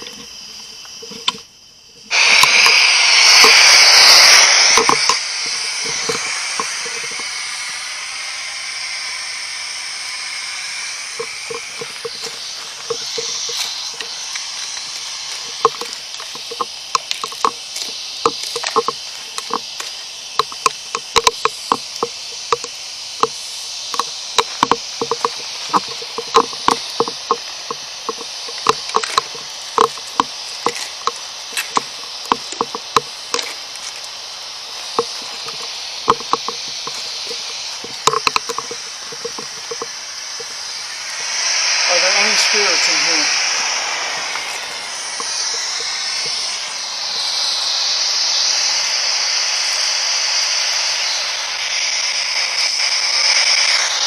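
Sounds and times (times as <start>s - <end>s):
short clicks and crackles: 0.0s - 7.4s, 11.1s - 40.9s
radio static hissing: 0.0s - 54.0s.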